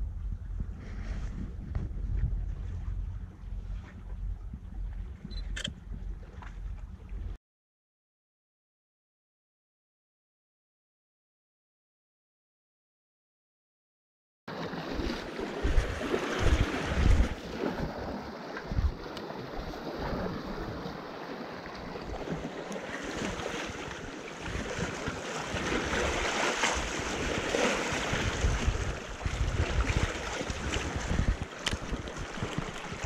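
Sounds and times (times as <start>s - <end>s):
wind buffeting the microphone: 0.0s - 7.4s, 15.0s - 33.0s
sea waves washing on concrete: 14.5s - 33.0s.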